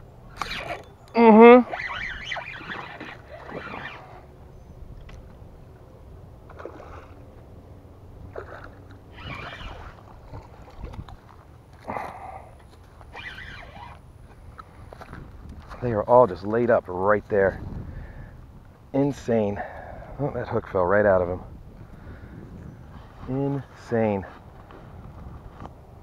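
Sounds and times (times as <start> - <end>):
water splashing at bank: 6.4 - 7.5, 8.2 - 12.2.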